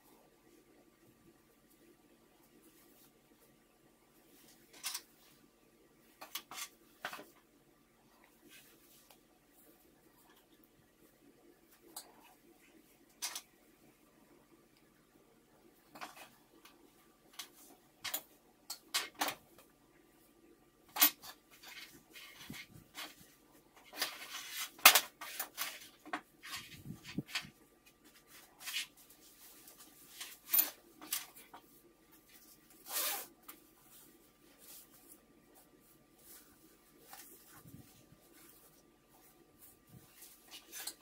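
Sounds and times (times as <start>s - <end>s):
fabric rustling on a table: 8.3s - 10.5s, 21.2s - 41.0s.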